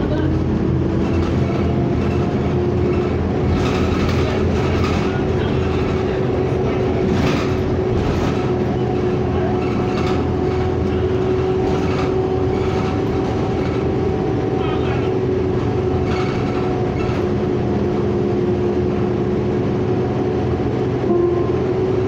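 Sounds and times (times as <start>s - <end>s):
bus body rattling over bumps: 0.0s - 22.0s
bus engine whine: 0.0s - 22.0s.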